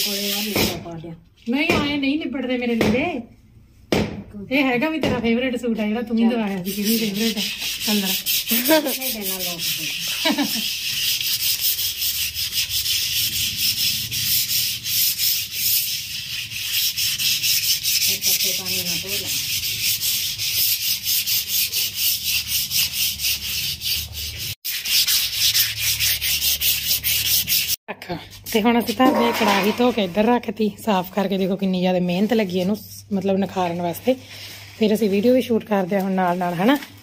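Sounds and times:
scrubbing metal wok: 0:00.0 - 0:00.7, 0:06.3 - 0:27.8.

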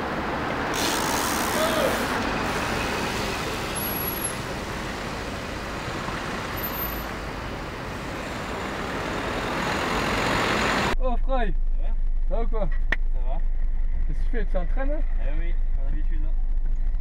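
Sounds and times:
cars driving past: 0:00.0 - 0:11.0.

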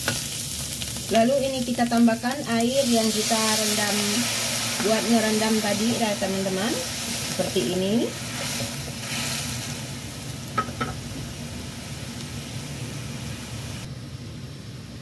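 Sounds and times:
vegetables bubbling and sizzling in wok: 0:00.0 - 0:15.0.

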